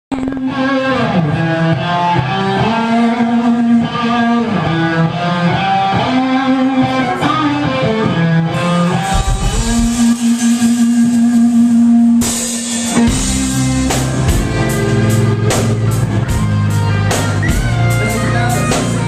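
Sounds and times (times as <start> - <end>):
electric guitars playing rock: 0.1 - 19.0
low drum thump: 9.1 - 10.4.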